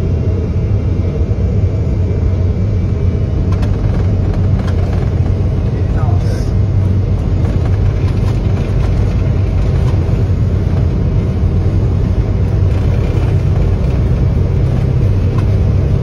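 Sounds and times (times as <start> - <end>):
aircraft rolling on runway: 0.0 - 16.0
jet engines at takeoff thrust: 0.0 - 16.0.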